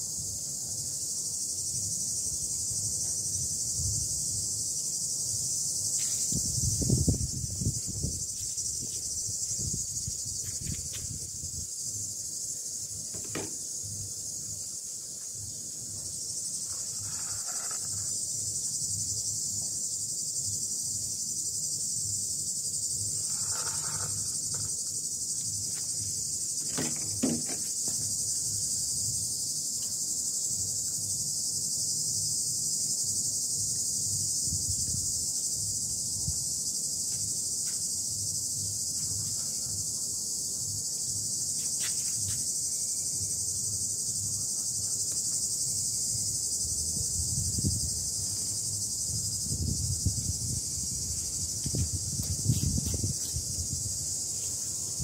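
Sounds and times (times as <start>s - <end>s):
insects chirping: 0.0s - 55.0s
sharp knock: 13.1s - 13.6s, 26.6s - 28.0s.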